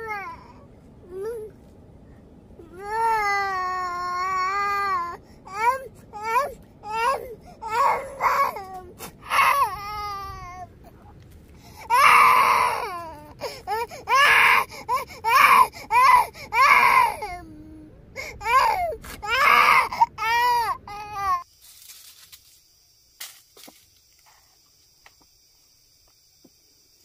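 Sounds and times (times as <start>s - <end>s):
young child crying: 2.6s - 10.7s, 11.9s - 21.4s.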